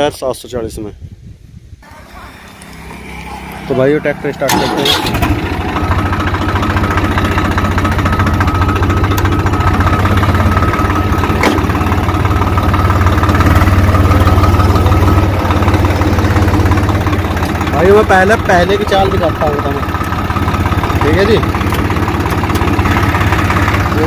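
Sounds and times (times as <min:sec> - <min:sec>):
diesel tractor engine idling: 0:01.8 - 0:24.0.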